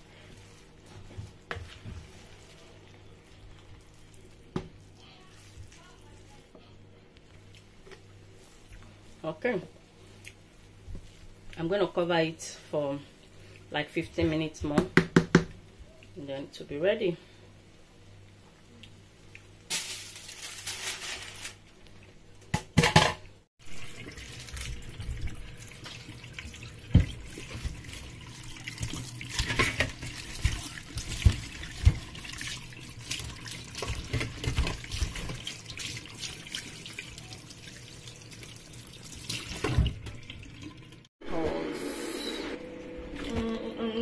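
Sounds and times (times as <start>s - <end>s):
aluminium foil crinkling: 19.7s - 22.0s
tap water running into steel sink: 23.8s - 41.1s.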